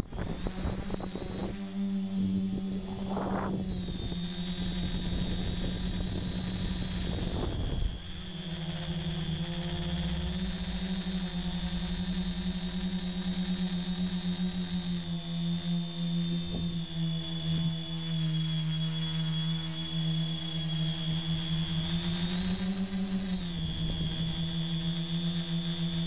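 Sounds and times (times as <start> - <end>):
wind rumble on microphone: 0.0 - 14.6, 23.2 - 24.6
drone motors and propellers: 0.0 - 26.0.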